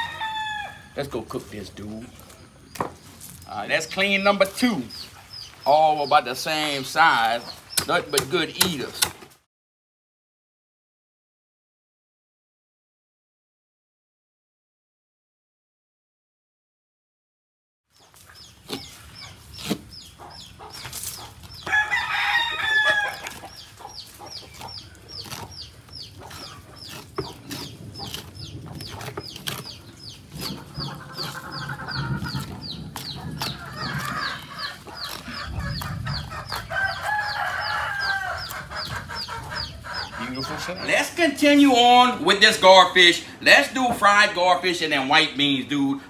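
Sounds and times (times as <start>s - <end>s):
roosters crowing: 0.0s - 1.2s, 20.1s - 43.3s.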